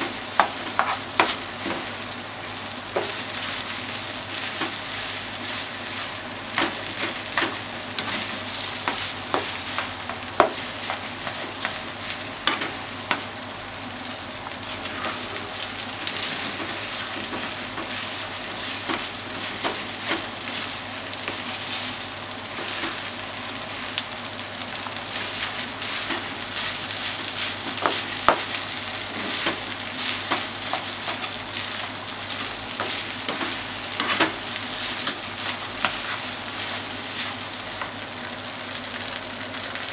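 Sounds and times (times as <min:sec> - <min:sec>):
rice sizzling in frying pan: 0:00.0 - 0:39.9
spatula clicking and scraping pan: 0:00.3 - 0:01.9, 0:04.4 - 0:13.3, 0:14.8 - 0:21.6, 0:25.2 - 0:38.0.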